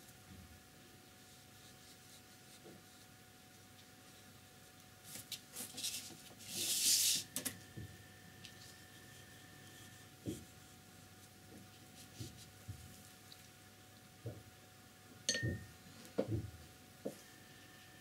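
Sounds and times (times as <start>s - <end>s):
brush scratching on paper: 1.2s - 4.3s, 5.2s - 7.3s, 8.6s - 10.8s.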